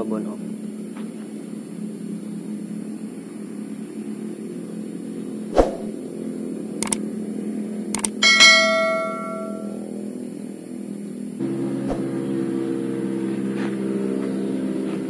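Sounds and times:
low hum: 8.0s - 9.8s
notification bell ding: 8.1s - 9.8s.

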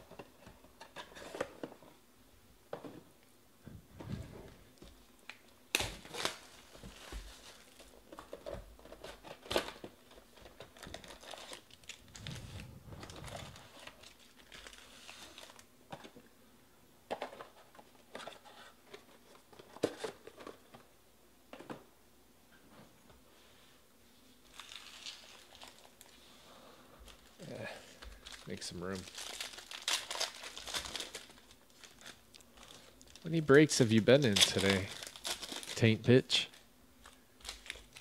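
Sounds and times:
foil wrappers crinkling: 5.2s - 15.7s, 24.4s - 26.2s, 27.0s - 38.0s.

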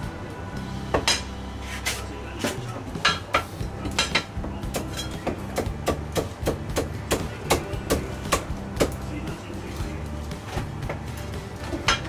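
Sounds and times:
steady low hum: 0.0s - 12.0s
cleaver chopping on wooden block: 4.7s - 9.0s.

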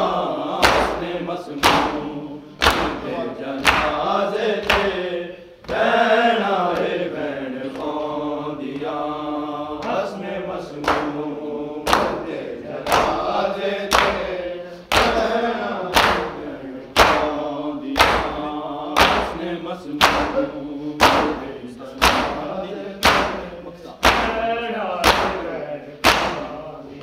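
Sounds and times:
voices chanting a lament: 0.0s - 27.0s
sharp chest slaps: 20.0s - 20.4s, 21.0s - 21.4s, 22.0s - 22.4s, 23.0s - 24.3s, 26.0s - 26.5s.

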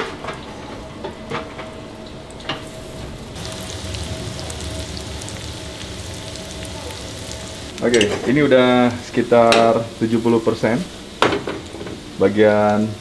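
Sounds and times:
potatoes sizzling in a frying pan: 2.6s - 13.0s.

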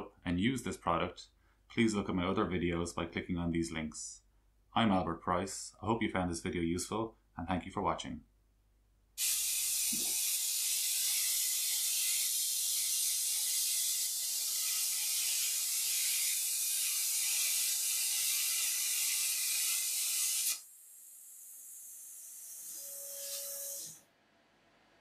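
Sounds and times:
plasma torch hissing: 9.2s - 10.5s.

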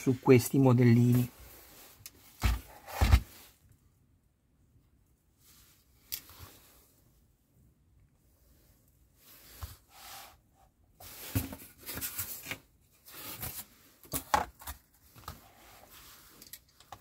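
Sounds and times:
cardboard rustling and scraping: 1.0s - 3.6s, 11.0s - 17.0s.

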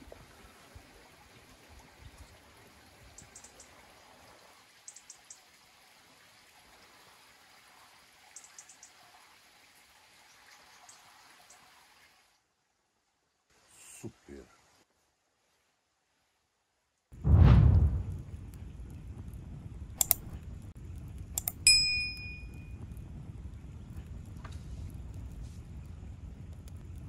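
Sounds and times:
outdoor background hiss: 0.0s - 27.0s
short high ticks: 20.0s - 20.3s.

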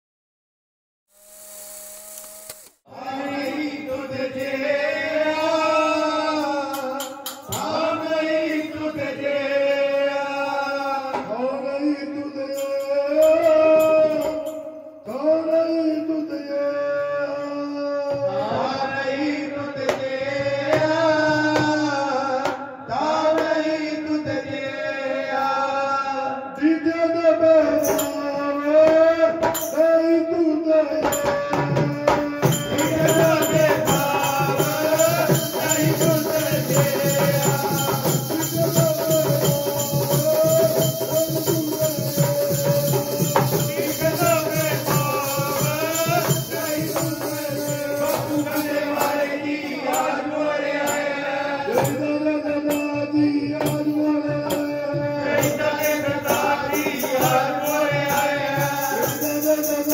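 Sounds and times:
men singing in unison: 2.9s - 59.9s
hand drum: 31.0s - 49.3s.

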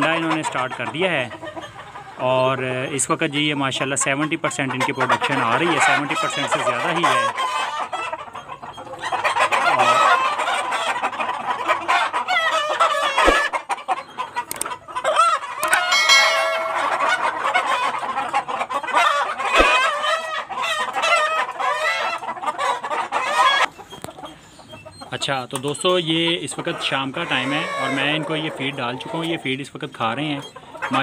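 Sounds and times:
chickens clucking: 4.2s - 10.0s, 26.7s - 31.0s.

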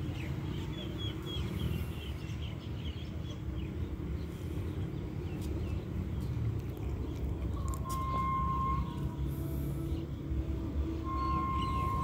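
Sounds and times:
bird chirping: 11.0s - 12.0s.

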